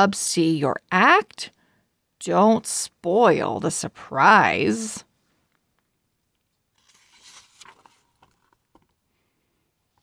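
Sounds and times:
book page turning: 6.5s - 9.0s.

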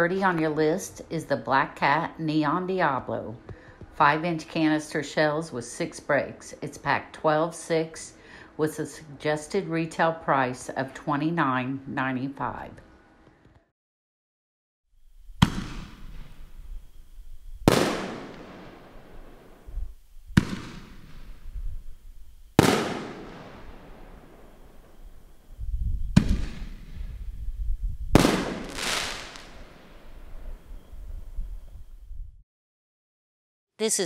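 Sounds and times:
firework shells booming with echo: 15.4s - 16.9s, 17.6s - 22.0s, 22.6s - 25.3s, 26.1s - 27.2s, 28.1s - 30.2s.

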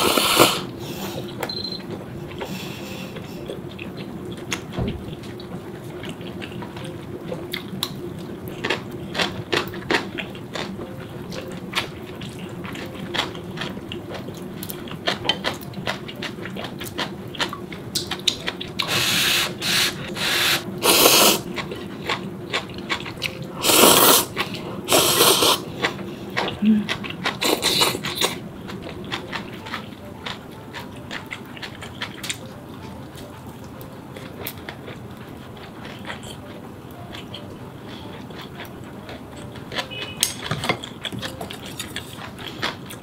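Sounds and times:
loud slurping of noodles: 0.0s - 0.7s, 18.9s - 21.4s, 23.6s - 24.3s, 24.9s - 25.6s
wet chewing: 0.0s - 43.0s
chopsticks and spoon clicking: 39.5s - 42.8s.

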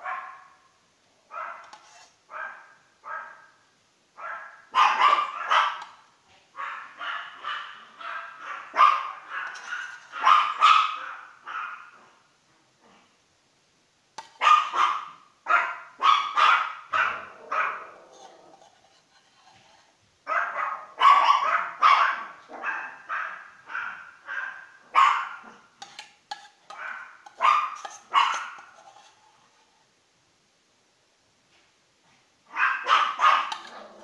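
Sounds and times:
dog barking: 0.0s - 0.6s, 1.3s - 3.6s, 4.2s - 6.0s, 6.6s - 12.2s, 14.4s - 18.0s, 20.3s - 25.7s, 26.7s - 28.7s, 32.5s - 34.0s.

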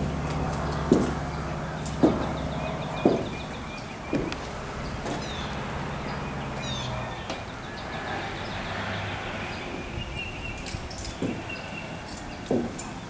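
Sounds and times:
footsteps on wooden boards: 0.0s - 5.7s, 9.6s - 13.0s
birds chirping: 0.0s - 13.0s.

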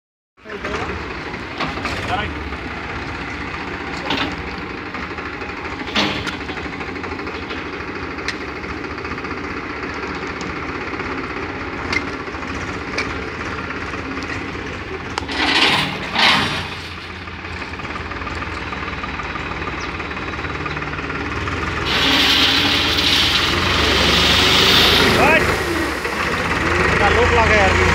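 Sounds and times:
tractor diesel engine knocking: 0.5s - 21.9s, 24.6s - 27.9s
bucket scraping into gravel: 15.3s - 17.0s, 21.8s - 26.1s.

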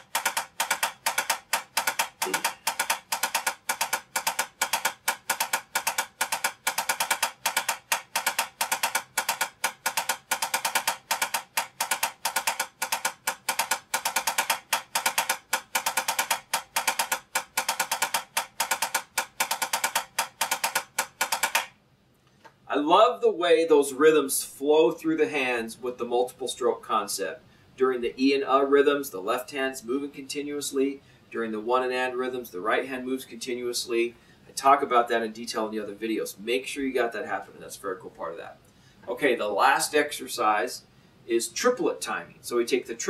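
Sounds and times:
drumsticks on practice pad: 0.0s - 21.8s.

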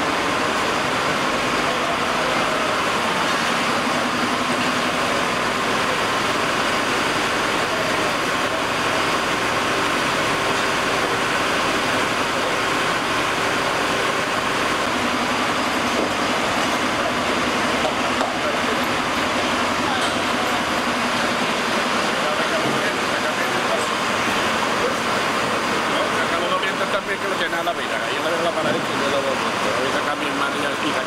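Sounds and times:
fire engine motor droning: 0.0s - 31.0s.

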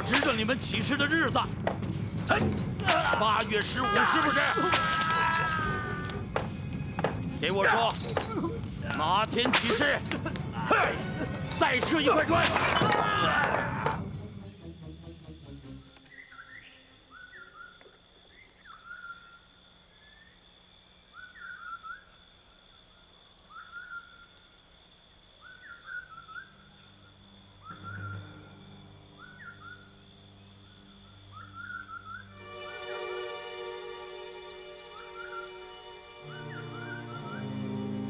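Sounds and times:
insect-like ticking: 0.0s - 12.4s, 17.2s - 32.4s
low sustained music tones: 10.0s - 18.6s, 24.9s - 38.0s
bird chirping: 14.0s - 38.0s.

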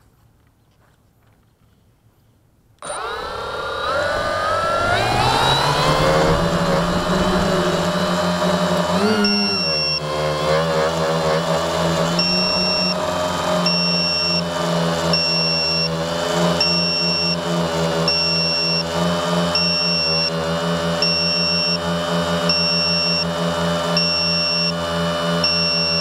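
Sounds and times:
drone motors whining: 2.8s - 26.0s
high electronic beep: 9.0s - 10.0s, 12.1s - 13.0s.

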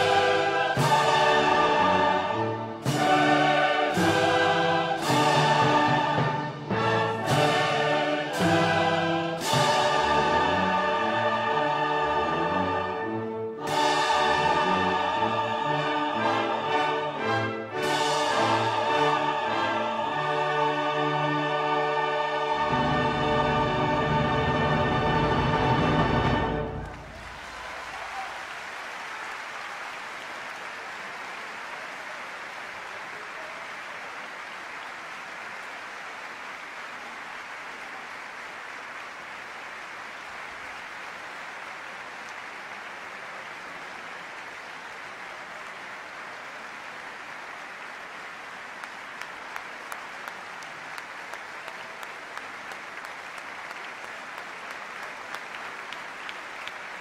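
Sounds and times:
audience applauding: 25.3s - 57.0s.

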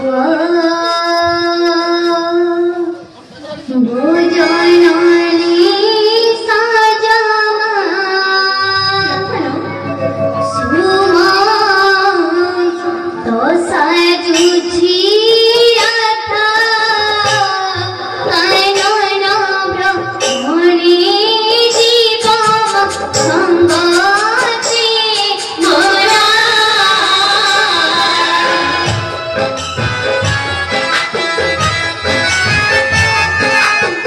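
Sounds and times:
girl singing in a high voice: 0.0s - 2.8s, 3.8s - 9.6s, 10.6s - 28.6s.

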